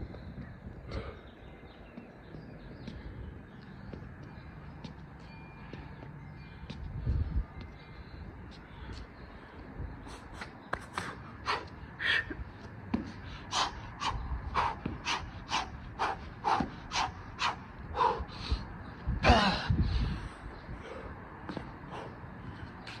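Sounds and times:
man breathing hard: 0.8 - 1.5, 5.6 - 23.0.

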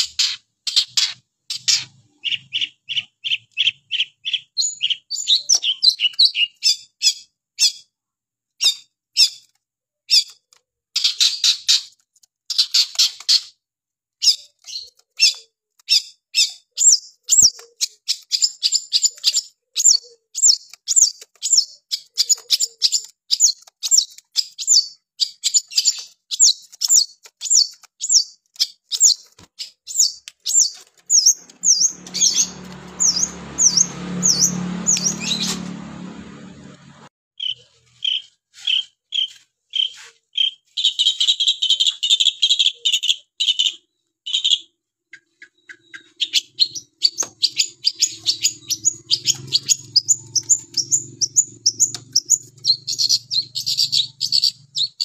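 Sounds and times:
bird singing sharp notes: 29.9 - 36.0, 45.2 - 55.0.

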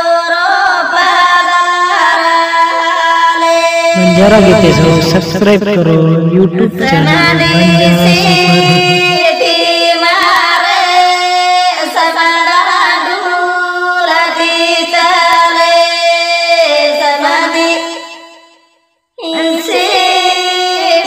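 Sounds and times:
woman singing wavering notes: 6.9 - 10.5.

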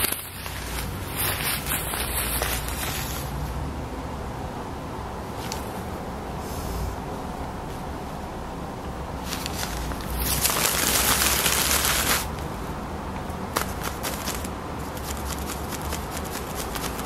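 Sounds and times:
packing paper rustling and crackling: 0.0 - 3.3, 9.2 - 12.4, 13.5 - 17.0.

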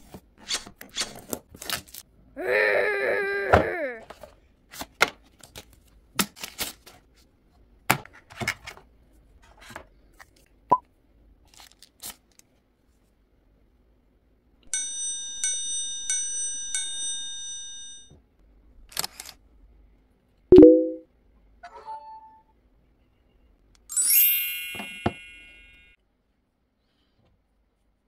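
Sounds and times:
cardboard and plastic rustling: 11.5 - 12.4
bright ringing tone: 20.5 - 21.0.

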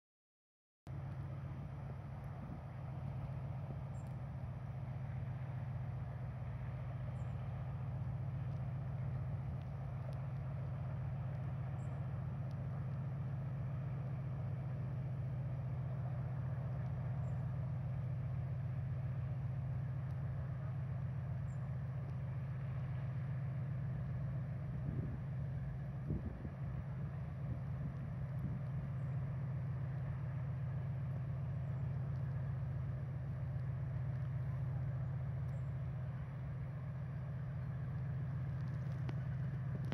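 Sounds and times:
ship engine low drone: 0.9 - 39.9.

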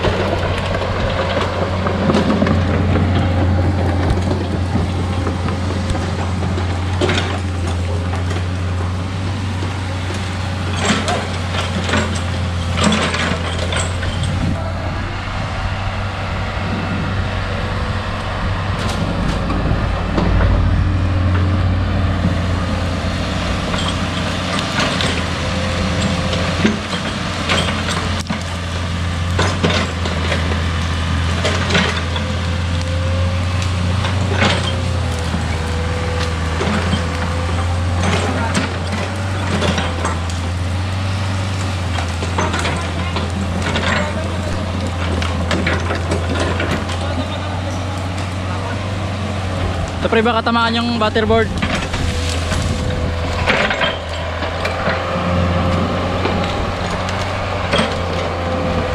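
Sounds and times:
excavator diesel engine running: 0.0 - 58.9
wavering whine: 13.8 - 24.6
sharp knocks and cracks: 23.6 - 47.3, 51.5 - 58.6.

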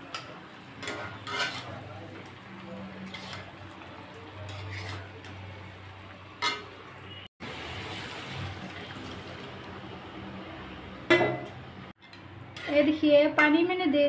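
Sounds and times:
spatula scraping metal pan: 0.8 - 1.8, 3.0 - 3.6, 4.4 - 5.3, 12.1 - 13.0
water poured and splashing: 7.4 - 9.8.

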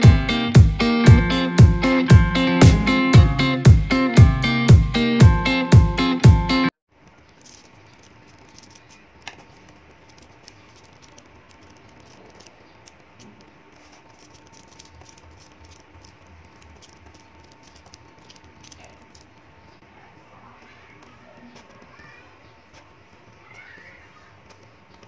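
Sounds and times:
magnetic balls clicking: 6.9 - 19.9, 20.6 - 25.0.

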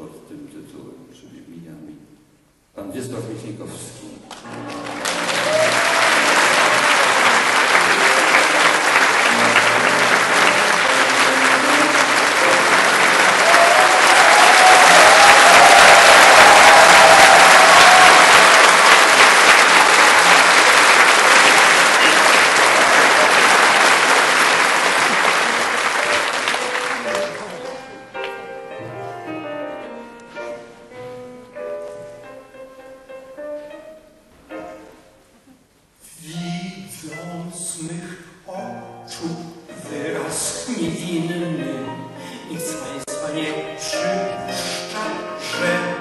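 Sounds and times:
faint piano playing: 3.0 - 18.6, 25.7 - 35.4, 36.0 - 46.0
large audience applauding: 4.3 - 28.4.

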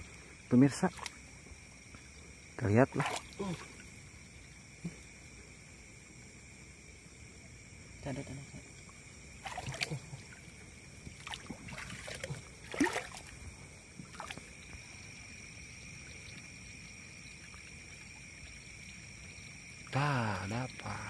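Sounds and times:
water splashing and sloshing: 0.0 - 5.3, 8.6 - 21.0.

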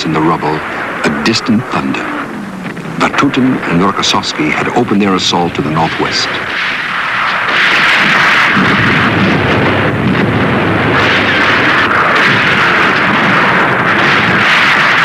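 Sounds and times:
artillery explosions rumbling: 0.0 - 15.0.

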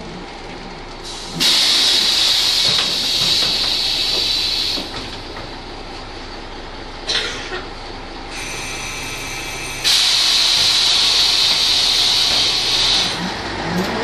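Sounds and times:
bus running noise: 0.0 - 14.0
compressed air hissing: 1.1 - 4.9, 8.3 - 13.2.

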